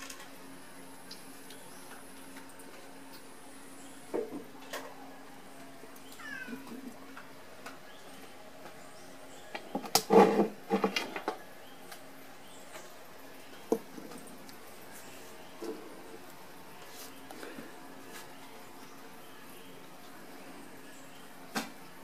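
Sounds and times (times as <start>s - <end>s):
cat meowing: 6.2s - 6.7s.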